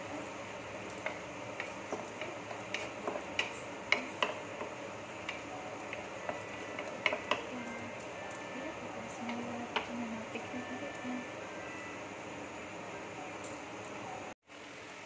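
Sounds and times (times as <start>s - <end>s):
spatula scraping and tapping a pan: 0.9s - 7.5s.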